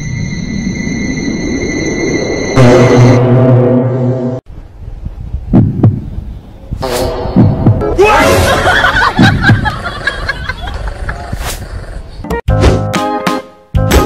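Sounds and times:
music: 0:06.8 - 0:08.2, 0:12.2 - 0:14.0
people laughing: 0:08.2 - 0:11.4.

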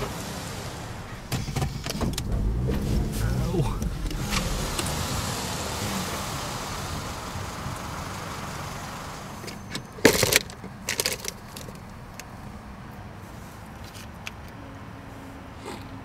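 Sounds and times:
rushing car noise: 0:00.0 - 0:15.6
rummaging clatter and knocks: 0:09.5 - 0:11.8.

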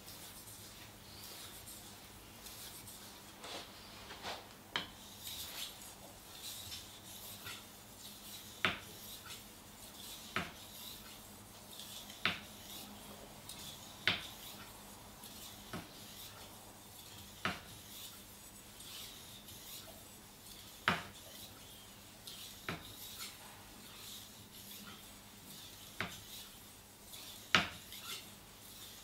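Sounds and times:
knife scraping on sharpening stone: 0:27.1 - 0:29.0.

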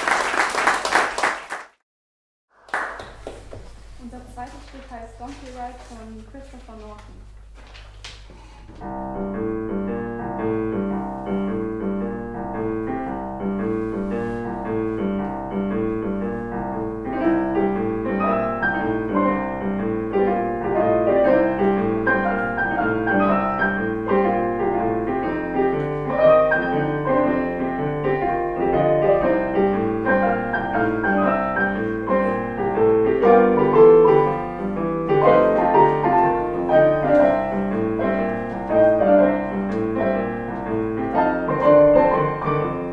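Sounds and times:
piano playing: 0:08.7 - 0:42.9.

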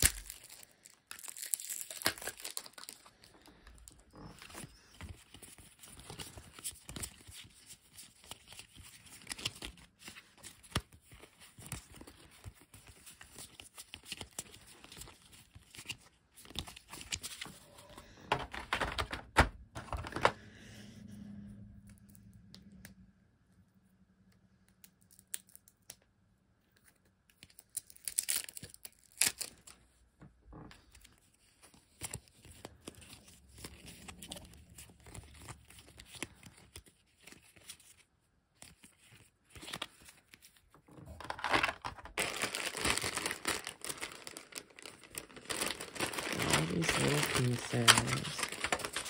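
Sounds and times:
plastic bag crinkling: 0:00.0 - 0:07.3, 0:41.0 - 0:49.0
cardboard tiles shuffled: 0:14.9 - 0:20.4, 0:40.9 - 0:49.0.

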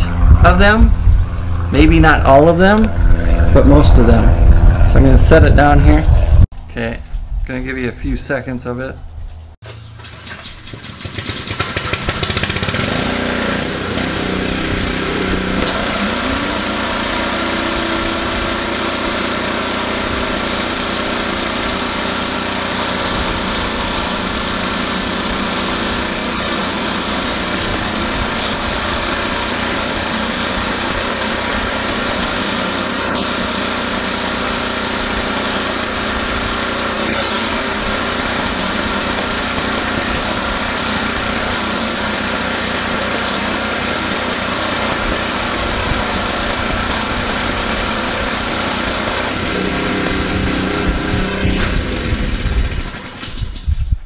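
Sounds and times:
pressure washer engine running: 0:00.0 - 0:06.0, 0:09.7 - 0:53.8
high-pressure water hissing: 0:11.8 - 0:53.2.

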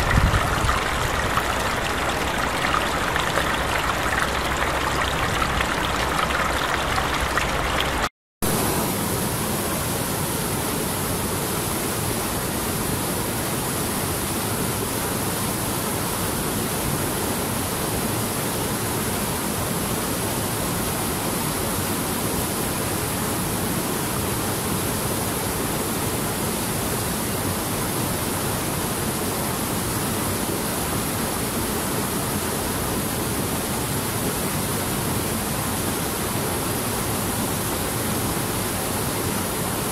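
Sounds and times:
small stream trickling over stones: 0:00.0 - 0:08.1
river rushing over boulders: 0:00.0 - 0:39.9.

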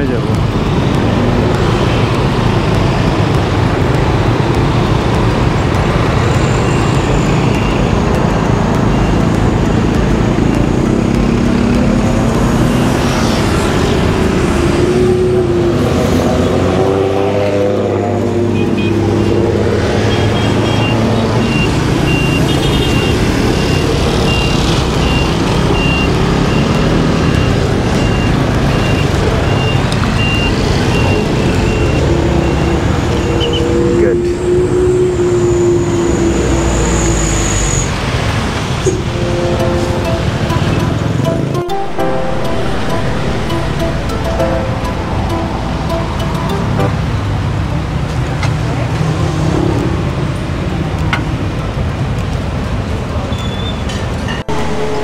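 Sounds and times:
traffic rumble and road noise: 0:00.0 - 0:55.0
scooter engine: 0:39.0 - 0:48.4.

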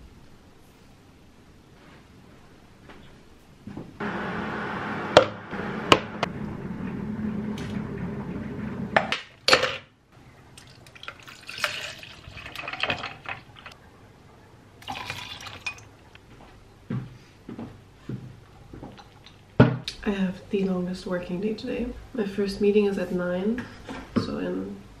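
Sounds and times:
milk pouring into plastic cup: 0:10.6 - 0:13.7, 0:14.8 - 0:15.6.

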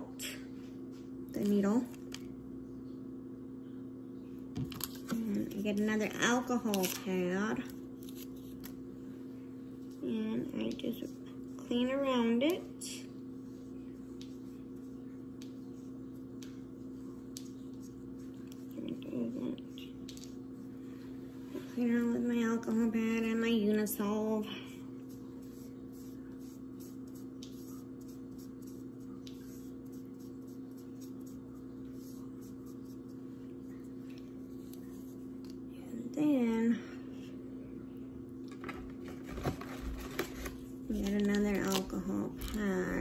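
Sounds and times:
low electrical hum: 0:00.0 - 0:43.0
pad rubbing on skin: 0:25.0 - 0:35.4.

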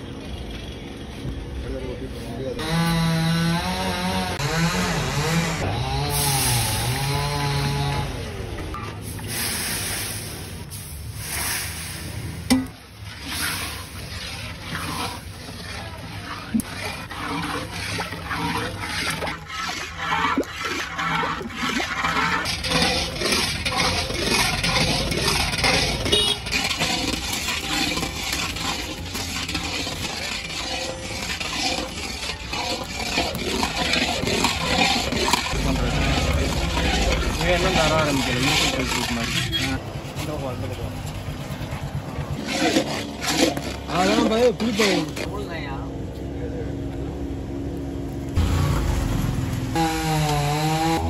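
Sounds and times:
thick mixture bubbling: 0:06.1 - 0:45.3
ladle stirring water: 0:10.2 - 0:45.3
metal spatula scraping iron pan: 0:11.2 - 0:45.3.

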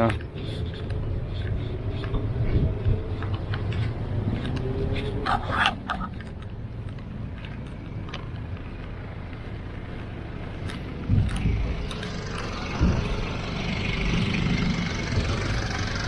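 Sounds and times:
vehicle engine rumbling: 0:00.0 - 0:16.0
low thumps: 0:12.7 - 0:15.4.

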